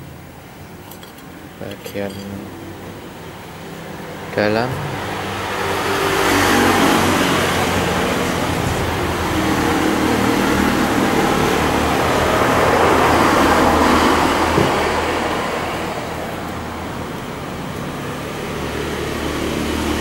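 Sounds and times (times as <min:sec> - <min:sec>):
traffic rush: 0:00.0 - 0:20.0
vehicle engine running: 0:02.9 - 0:20.0.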